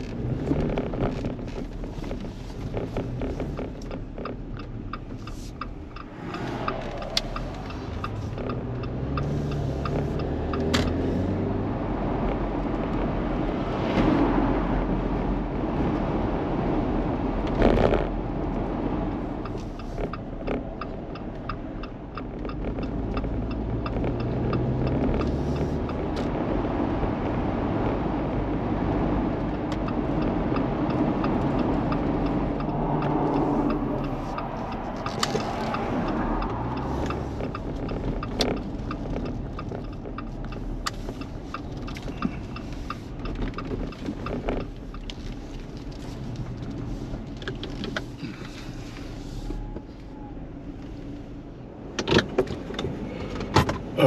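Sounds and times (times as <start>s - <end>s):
faint regular ticking: 0.0s - 11.0s, 19.1s - 26.3s, 29.3s - 49.0s
car engine accelerating: 0.0s - 54.0s.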